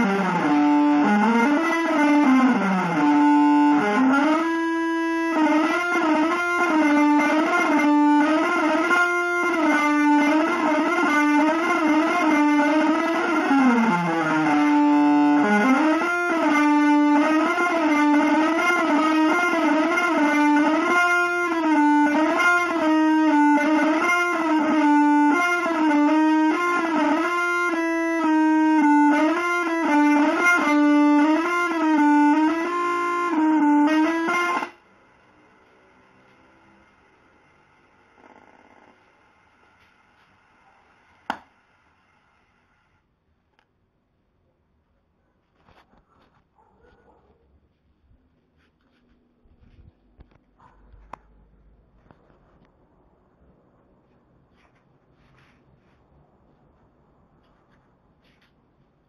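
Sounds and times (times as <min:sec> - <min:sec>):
electric guitar melody with slides: 0:00.0 - 0:34.8.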